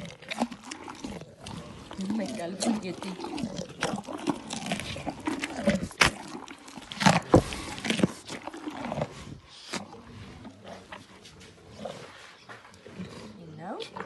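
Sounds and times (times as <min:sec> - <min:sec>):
sharp clicks and wet mouth sounds: 0:00.0 - 0:09.1
rhino chewing food: 0:00.0 - 0:14.0.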